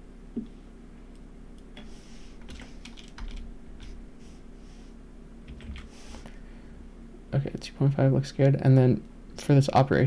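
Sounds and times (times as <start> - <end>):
low steady hum: 0.0 - 10.0
computer keyboard typing: 2.5 - 4.0, 5.5 - 5.9.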